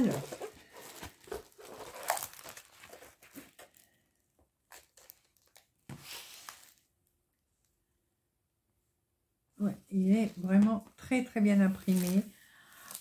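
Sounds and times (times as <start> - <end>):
plastic crinkling and rustling: 0.0 - 6.9, 10.2 - 13.0.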